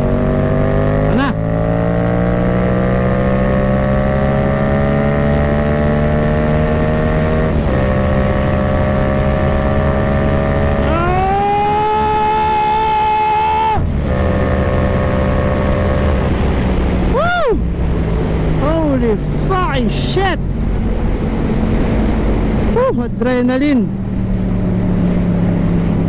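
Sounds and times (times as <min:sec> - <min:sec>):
motorcycle engine accelerating: 0:00.0 - 0:19.8, 0:20.4 - 0:26.0
heavy wind rush: 0:07.2 - 0:26.0.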